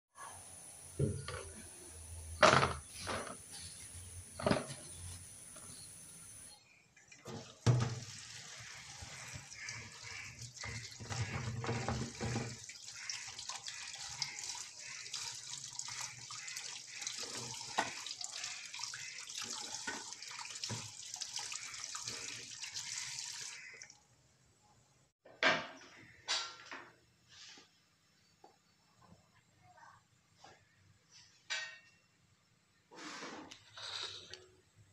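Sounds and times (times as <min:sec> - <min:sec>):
tap water running into bowl: 0:07.3 - 0:24.0.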